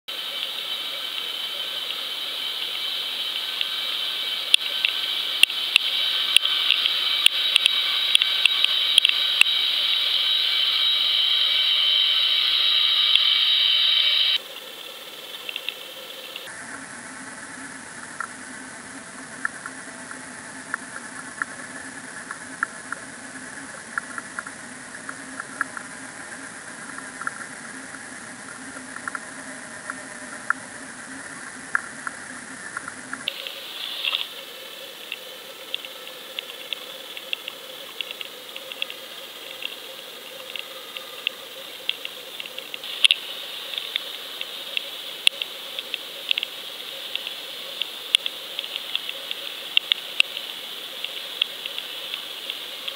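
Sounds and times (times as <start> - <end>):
underwater hiss: 0.1 - 14.4, 33.3 - 52.9
low hum: 0.2 - 14.4, 16.3 - 42.0
sharp clicks: 4.5 - 10.6, 40.4 - 52.9.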